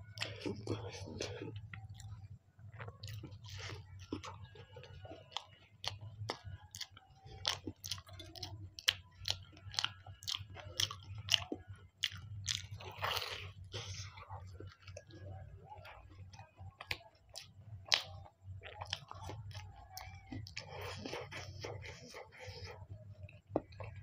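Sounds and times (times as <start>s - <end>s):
chewing fried pastry: 0.0s - 24.0s.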